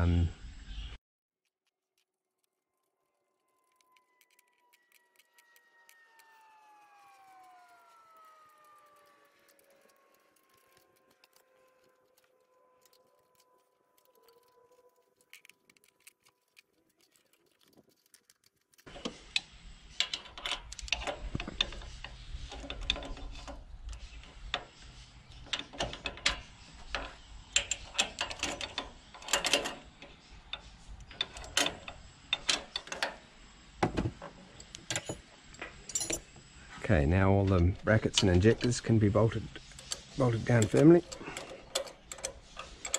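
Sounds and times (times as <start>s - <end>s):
faint siren: 2.6s - 16.4s.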